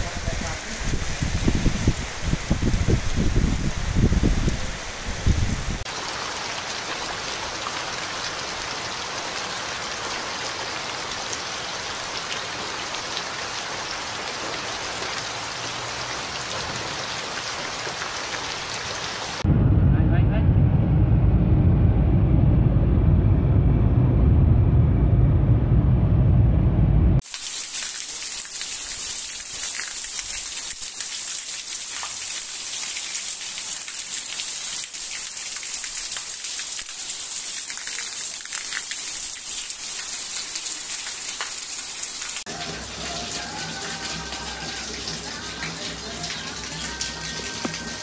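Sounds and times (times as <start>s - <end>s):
heavy rain on roofs and trees: 0.0s - 19.5s, 27.2s - 48.0s
road and wind noise in car: 19.4s - 27.2s
water pouring off roof edge: 27.2s - 48.0s.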